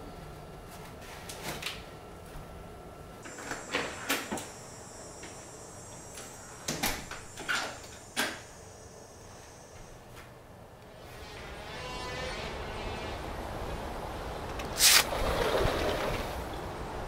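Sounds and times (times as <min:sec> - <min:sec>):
faint high whine: 0:01.9 - 0:15.1.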